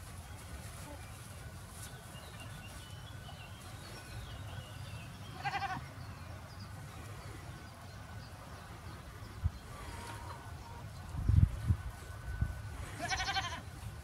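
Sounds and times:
goat bleating: 5.3 - 5.9, 12.8 - 13.7.

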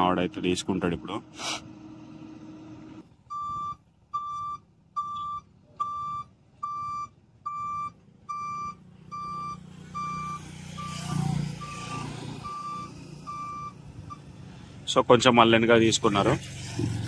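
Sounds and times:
diesel engine running: 0.0 - 17.0
reversing alarm beeps: 3.3 - 14.3.

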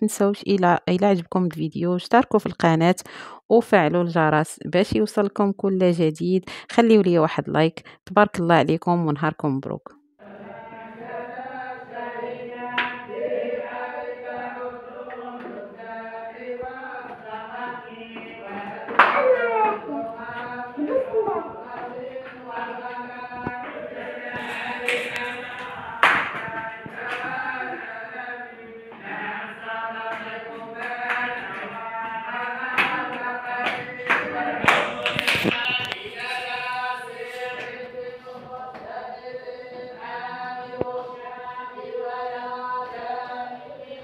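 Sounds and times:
voices chanting in unison: 10.2 - 44.0.

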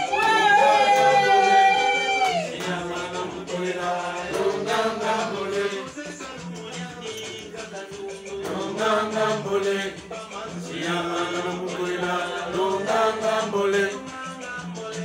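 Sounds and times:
voices singing long held notes: 0.0 - 15.0.

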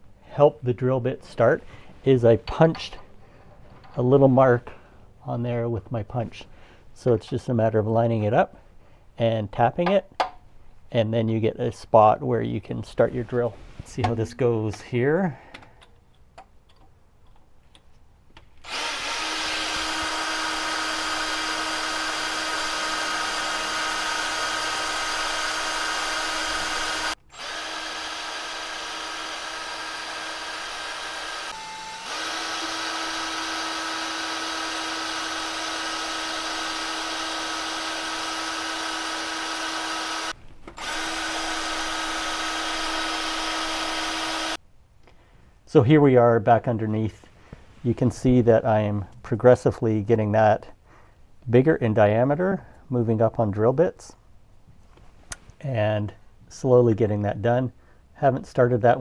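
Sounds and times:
cordless drill whining: 18.6 - 44.6.

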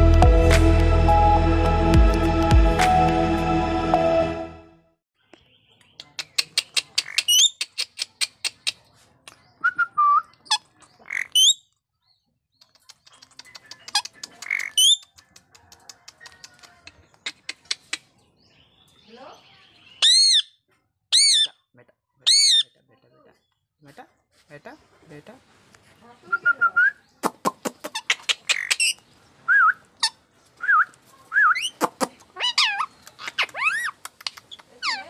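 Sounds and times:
parakeet squawks: 10.5 - 11.6, 13.9 - 15.0, 22.3 - 22.7, 27.9 - 29.0, 31.5 - 34.0
parakeet clicks: 12.6 - 18.0, 33.0 - 34.8
parakeet screeches: 32.4 - 34.0.

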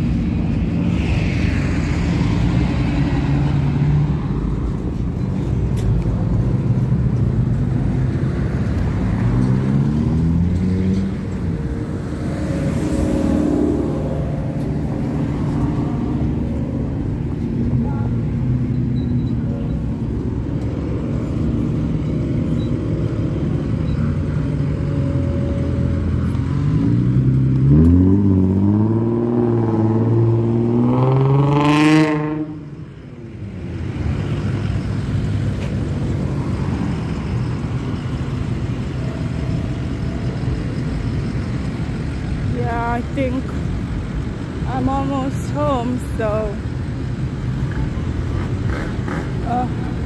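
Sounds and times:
slow traffic: 0.0 - 50.0
vehicle engine revving: 26.3 - 32.6.

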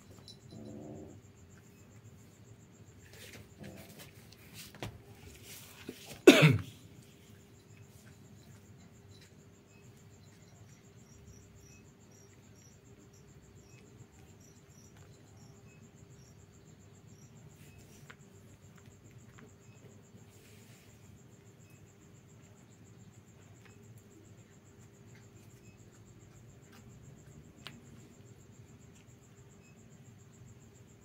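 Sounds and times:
crickets chirping: 0.0 - 31.0
person coughing: 6.1 - 6.8.

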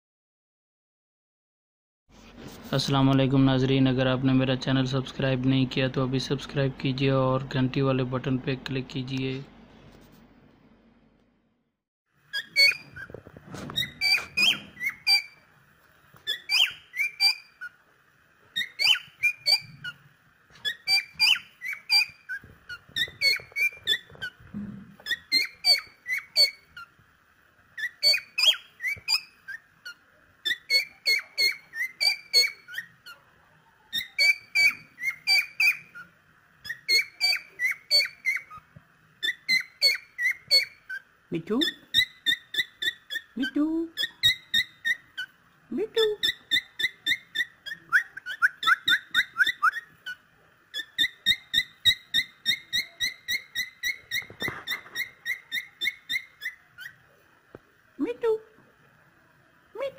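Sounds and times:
cockatiel chirping and whistling: 12.3 - 15.4, 16.2 - 17.8, 18.5 - 20.0, 20.6 - 24.4, 25.0 - 26.9, 27.8 - 33.2, 33.9 - 45.4, 46.0 - 57.0.

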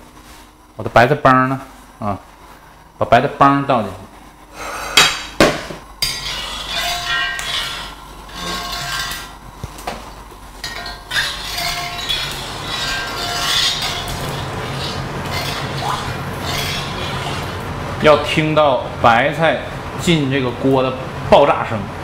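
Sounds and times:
metal ladle scraping a wok: 6.0 - 9.4, 10.6 - 17.7.

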